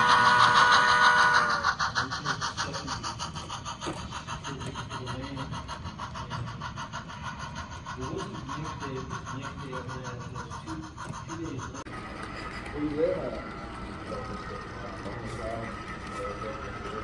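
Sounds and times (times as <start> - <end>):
model steam locomotive chuffing: 0.0 - 17.0.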